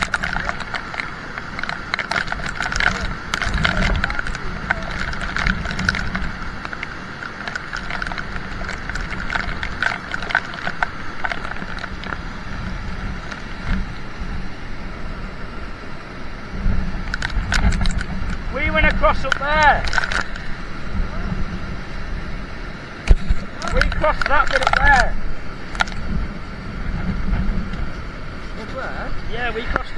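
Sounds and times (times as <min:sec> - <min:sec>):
raindrops ticking on phone: 0:00.0 - 0:14.0, 0:17.0 - 0:20.6, 0:23.0 - 0:26.3
stream rushing over rocks: 0:00.0 - 0:29.9.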